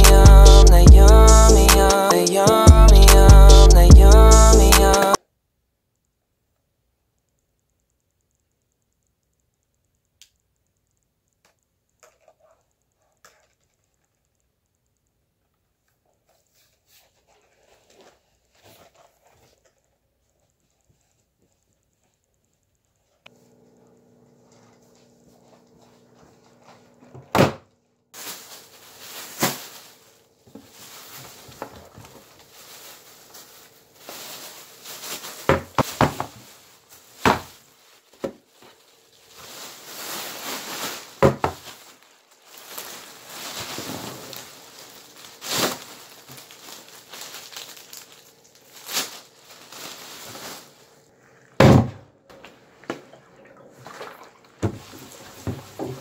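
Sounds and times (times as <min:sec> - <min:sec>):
plastic bag rustling: 0:28.2 - 0:51.1, 0:53.7 - 0:56.0.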